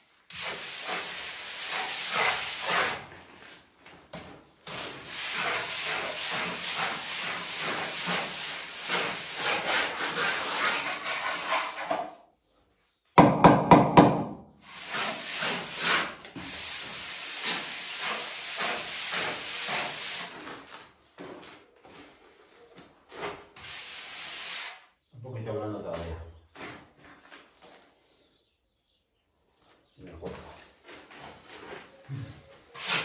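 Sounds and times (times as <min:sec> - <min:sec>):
plastering float rubbing on wall: 0:00.3 - 0:03.6, 0:04.4 - 0:12.2, 0:14.6 - 0:22.2, 0:23.1 - 0:24.8, 0:32.6 - 0:33.0.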